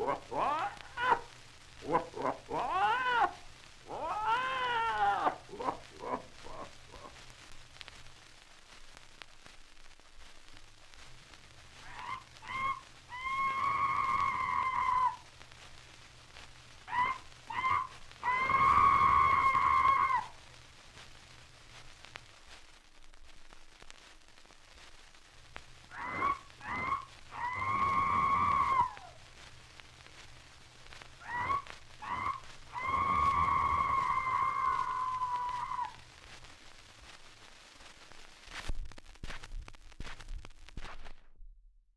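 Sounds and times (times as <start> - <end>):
animal cries: 0.0 - 1.2, 1.8 - 7.1, 11.8 - 15.2, 16.9 - 20.4, 25.9 - 29.2, 31.2 - 36.0
record hiss and crackle: 0.0 - 41.5.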